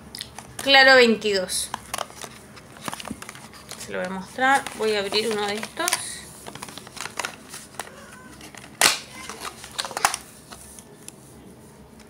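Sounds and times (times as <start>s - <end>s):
paperboard carton rustling: 1.9s - 10.8s
carton snap: 4.6s - 10.3s.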